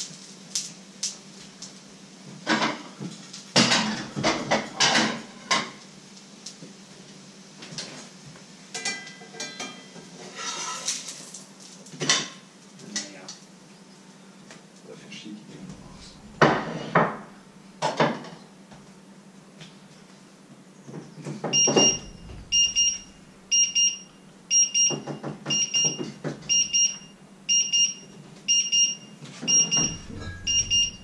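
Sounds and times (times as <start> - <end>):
knocks and clatter: 15.7 - 18.2, 21.4 - 23.6, 29.6 - 31.0
electronic alarm beeps: 21.5 - 31.0.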